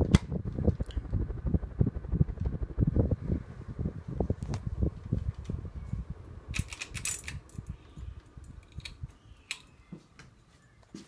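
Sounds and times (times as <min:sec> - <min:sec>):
air buffeting microphone: 0:00.0 - 0:09.4
ceiling fan running: 0:00.0 - 0:11.0
clicks and light rattles: 0:06.6 - 0:09.7.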